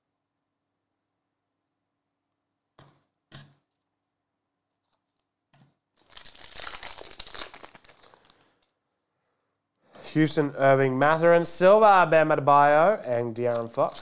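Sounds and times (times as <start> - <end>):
foil wrapper tearing: 6.0 - 8.4, 13.4 - 14.0.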